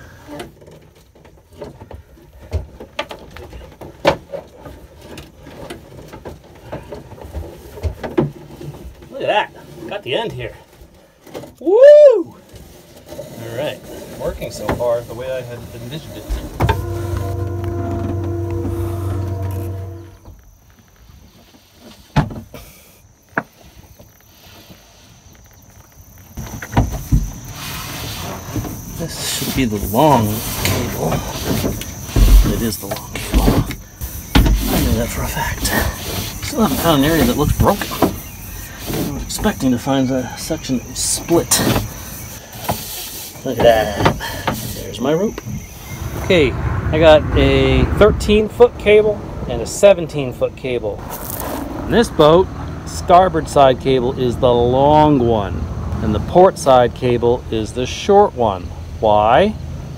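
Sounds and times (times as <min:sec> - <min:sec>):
cable knocking and scraping: 0:16.2 - 0:20.1.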